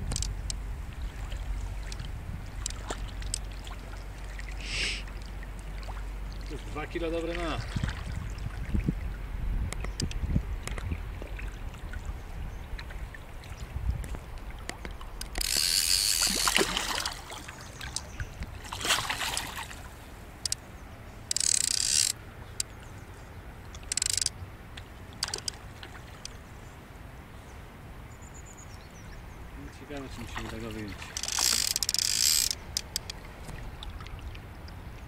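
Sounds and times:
fly reel ratchet buzzing: 15.2 - 16.7, 21.3 - 22.2, 23.8 - 24.3, 31.2 - 33.2.

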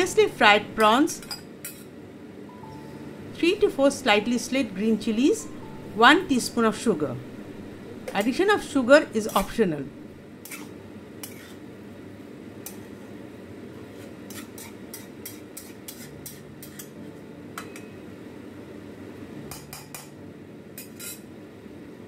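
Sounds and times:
low hum: 2.2 - 10.3
metal spatula scraping a pan: 10.4 - 11.6, 13.9 - 17.0, 20.8 - 21.2.

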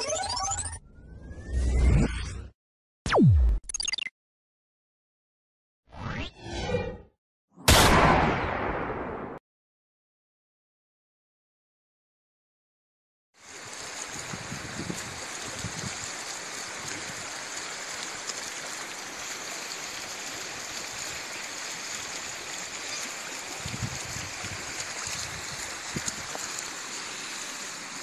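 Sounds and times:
river flowing over stones: 13.4 - 28.0.

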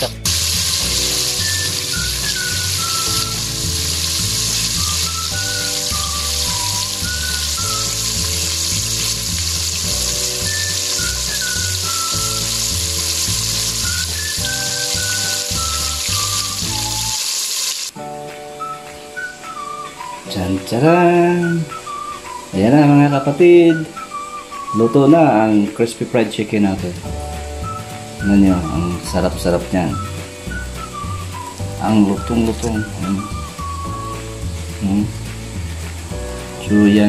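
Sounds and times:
background music with bass line: 0.0 - 17.1, 26.8 - 37.0
chicken deep-frying sizzle: 0.0 - 37.0.

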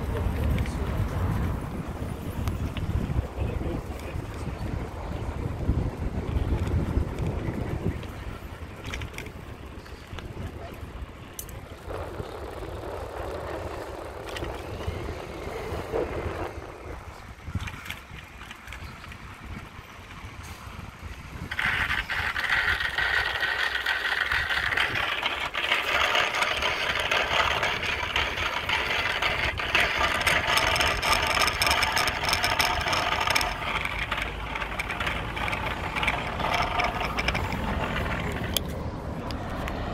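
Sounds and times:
bicycle tyre and road noise: 0.0 - 39.9
wind rumble on microphone: 0.0 - 39.9
rattling clicks: 21.5 - 39.8.

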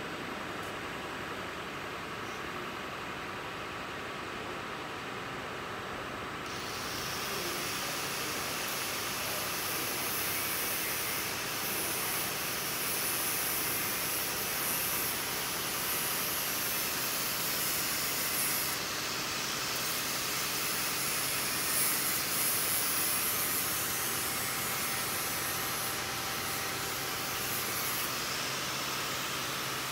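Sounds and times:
grinding machine whirring hiss: 6.5 - 29.9.

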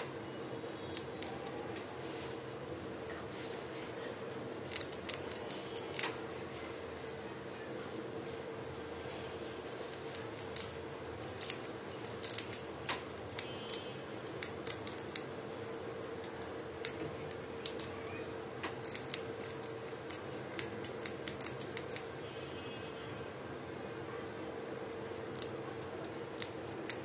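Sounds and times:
rat gnawing and crunching food: 0.2 - 27.0.

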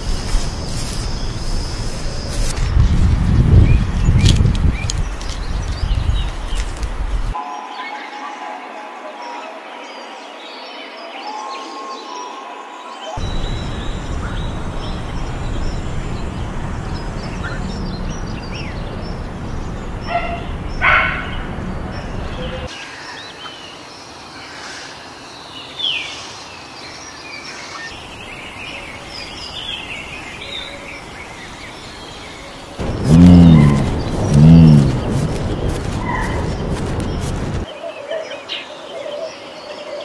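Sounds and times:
birds chirping and calling: 13.2 - 23.6, 27.4 - 40.0.

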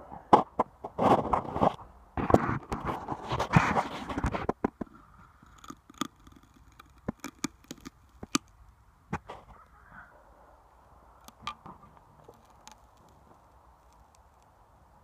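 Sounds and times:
blade clicking and cracking wood: 4.5 - 8.6, 12.2 - 14.5.

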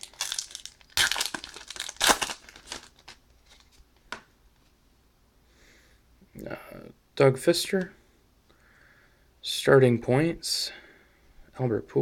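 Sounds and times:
card pack wrapper tearing and crinkling: 0.0 - 3.8.

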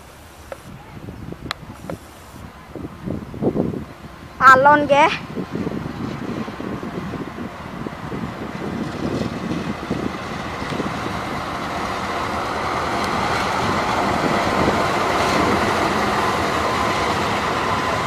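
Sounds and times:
thin steady whine: 0.0 - 2.8
locomotive passing slowly: 0.0 - 18.0.

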